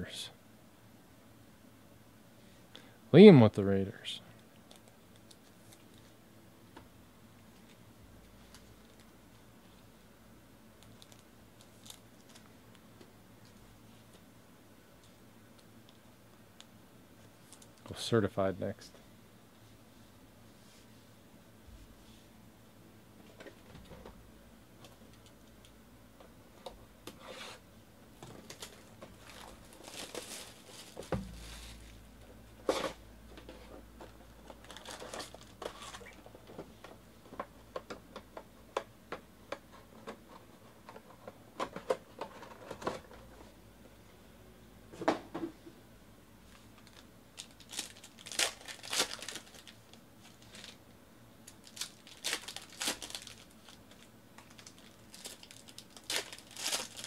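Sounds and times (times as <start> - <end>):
card pack wrapper tearing: 46.8 - 50.8, 51.6 - 57.0.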